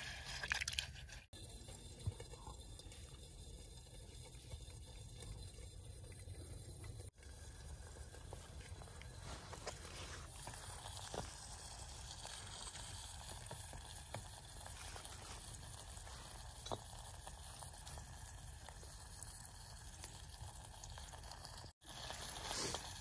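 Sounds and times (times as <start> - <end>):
food sizzling in a pot: 18.9 - 23.0.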